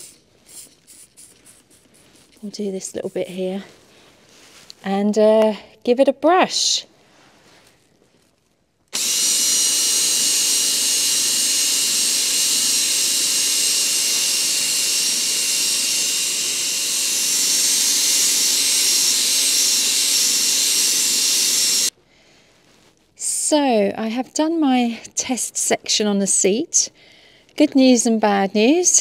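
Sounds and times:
brush bristles scrubbing upholstery: 0:00.0 - 0:04.5
cordless drill motor whine: 0:08.9 - 0:21.9.

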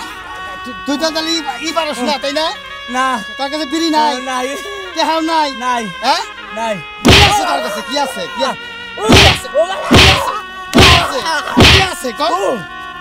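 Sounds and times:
stick whacking a person: 0:07.0 - 0:07.5, 0:09.1 - 0:12.0.

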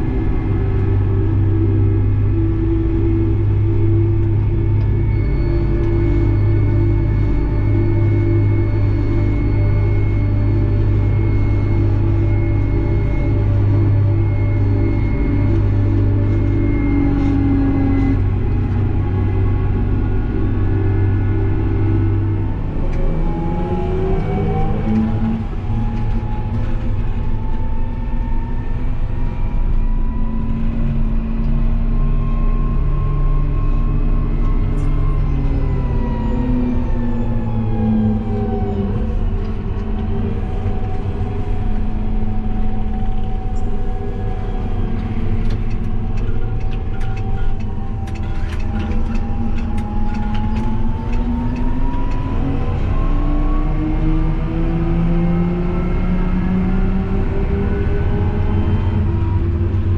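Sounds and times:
tractor engine whine and rumble: 0:00.0 - 0:59.9.

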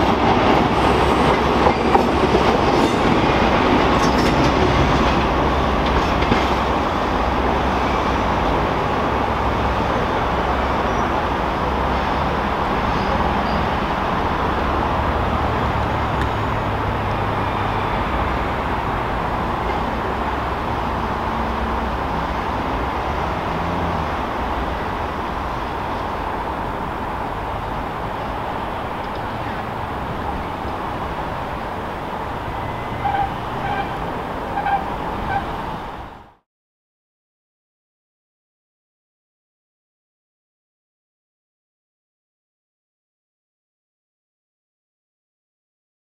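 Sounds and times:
diesel train engine rumble: 0:00.0 - 0:36.4.

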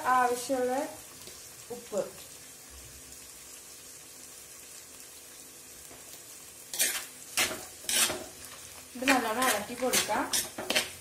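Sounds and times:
onions sizzling in oil: 0:00.0 - 0:11.0
metal spoon scraping a pot: 0:06.7 - 0:08.3, 0:09.0 - 0:11.0.

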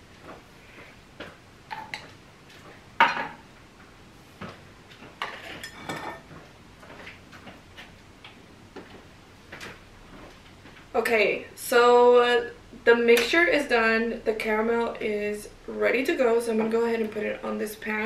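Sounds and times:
pots and pans clattering: 0:05.2 - 0:06.3.

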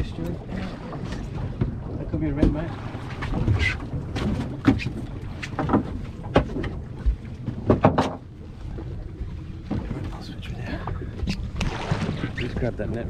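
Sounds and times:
water knocking against boat hull: 0:01.0 - 0:08.3.

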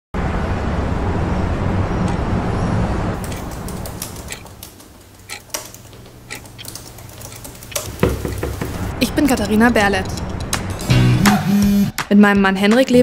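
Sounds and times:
distant traffic rumble: 0:00.2 - 0:10.8
laptop keys clicking: 0:03.2 - 0:08.8.

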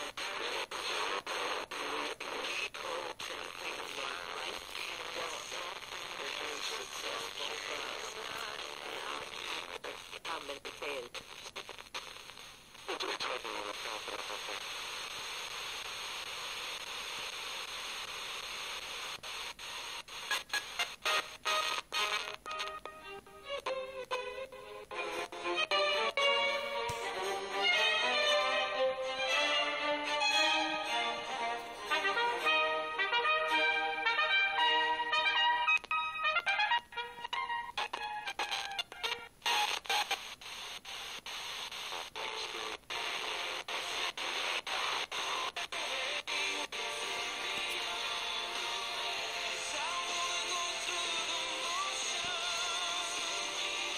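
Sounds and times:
choppy radio station audio: 0:00.0 - 0:53.9
radio static hiss: 0:00.0 - 0:53.9.

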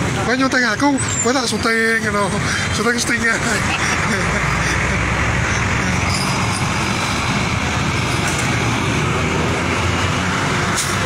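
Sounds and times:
heavy vehicle engine running: 0:00.0 - 0:11.0.

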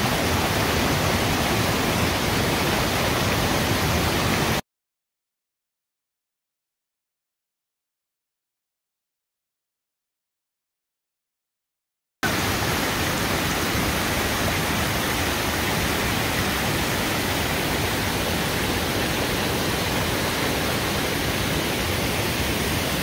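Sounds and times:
water rushing over rocks: 0:00.0 - 0:04.6, 0:12.3 - 0:23.0.

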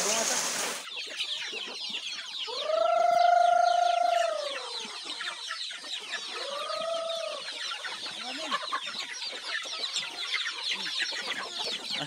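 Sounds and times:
chickens clucking and chirping: 0:00.0 - 0:12.0
chicken call rising and falling: 0:02.5 - 0:04.8.

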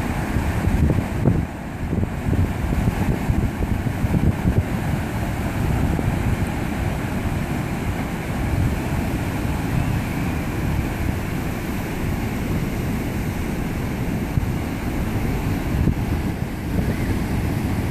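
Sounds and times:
surf breaking over rocks: 0:00.0 - 0:17.9
wind buffeting microphone: 0:00.0 - 0:17.9.

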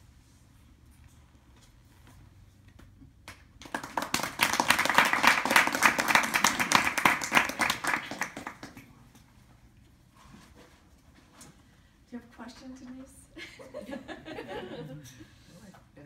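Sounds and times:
audience applauding: 0:03.6 - 0:08.9.

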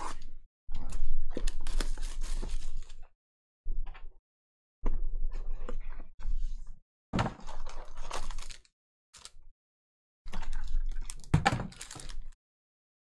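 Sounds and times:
card and foil crackling: 0:07.9 - 0:09.4, 0:11.0 - 0:12.4.

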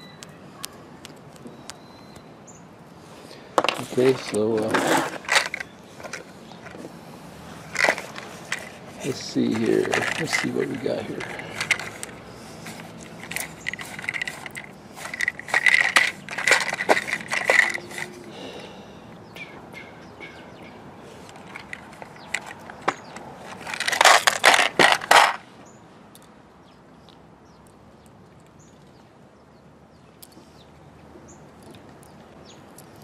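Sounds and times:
metal fittings rattling in a tin: 0:03.7 - 0:06.2, 0:07.7 - 0:18.2, 0:21.4 - 0:25.4.

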